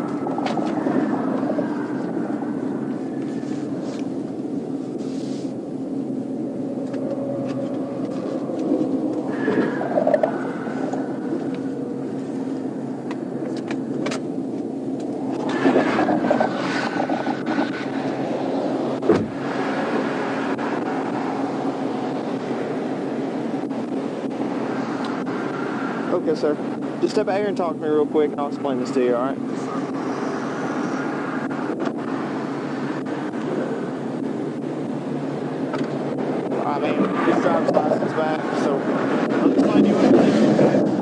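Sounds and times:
car engine idling: 0.0s - 41.0s
sharp thump: 19.1s - 19.4s.

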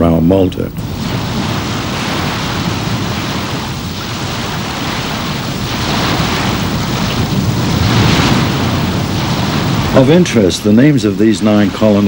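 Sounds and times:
wind and sea rushing: 0.8s - 12.0s.

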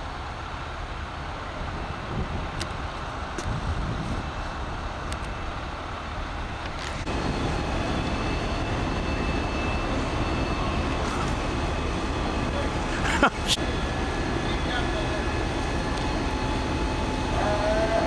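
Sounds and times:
fire engine rumble: 0.0s - 18.0s
thin high whine: 6.5s - 18.0s.

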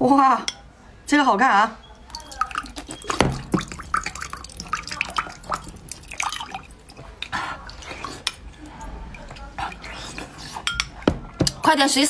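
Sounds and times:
water dripping into a glass mug: 2.0s - 11.6s
wet mouth sounds: 2.1s - 11.0s.

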